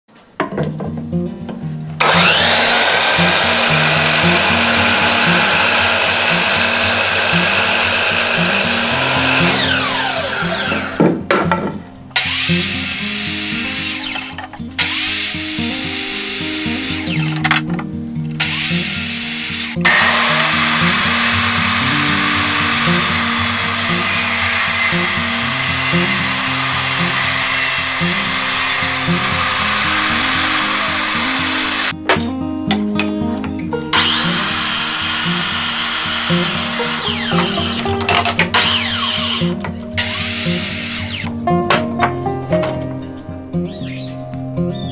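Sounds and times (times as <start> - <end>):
saw blade spinning down whine: 2.0 - 11.0, 12.2 - 15.4, 18.4 - 32.0, 34.0 - 37.9, 38.6 - 41.3
miter saw cutting wood: 2.0 - 11.2, 12.2 - 17.6, 18.4 - 32.0, 33.9 - 41.3
background music with bass line: 19.8 - 44.9.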